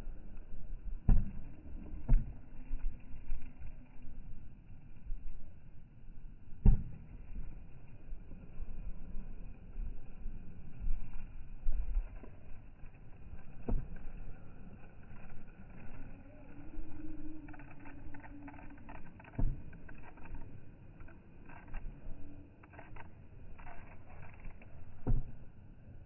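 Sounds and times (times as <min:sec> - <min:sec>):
faint hum: 0:00.0 - 0:26.0
wind rumbling on microphone: 0:00.0 - 0:26.0.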